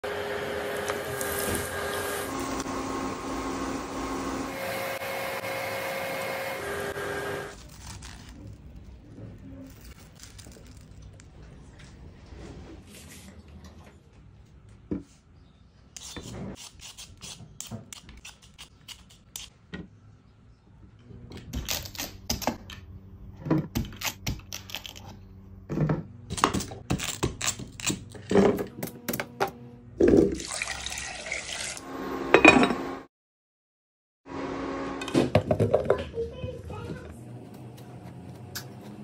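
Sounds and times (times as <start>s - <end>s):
running water: 30.3s - 31.8s.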